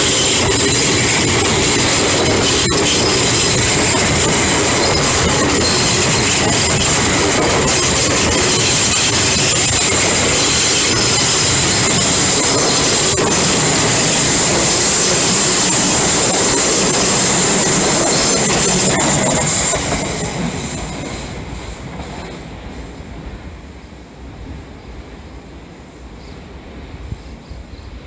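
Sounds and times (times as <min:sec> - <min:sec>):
high-pitched squeal: 0:00.0 - 0:21.4
train wheels rumbling on rails: 0:00.0 - 0:28.0.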